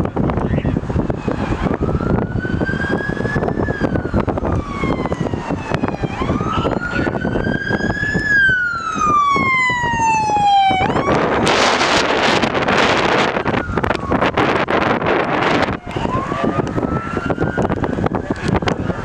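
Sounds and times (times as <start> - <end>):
wind rumbling on microphone: 0.0 - 19.0
siren wailing: 1.0 - 19.0.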